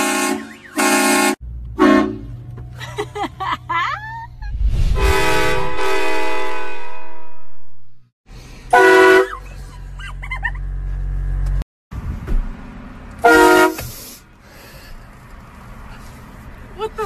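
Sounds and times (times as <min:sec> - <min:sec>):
train horn blasts: 0:00.0 - 0:02.4, 0:05.0 - 0:07.8, 0:08.7 - 0:09.3, 0:13.2 - 0:13.8.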